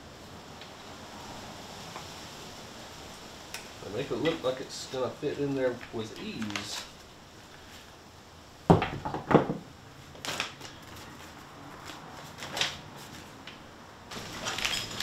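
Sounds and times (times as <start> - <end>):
paper leaflet rustling: 4.2 - 7.0, 10.2 - 15.0.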